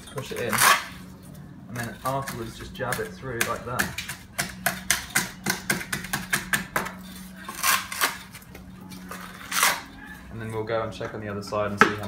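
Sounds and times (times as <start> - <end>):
trowel scraping cement mix: 0.0 - 1.0, 1.7 - 8.4.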